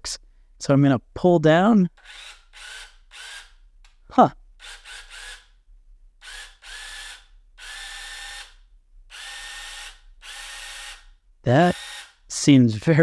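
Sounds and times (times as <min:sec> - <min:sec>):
electric chainsaw whining: 0:04.6 - 0:05.4, 0:06.2 - 0:12.3.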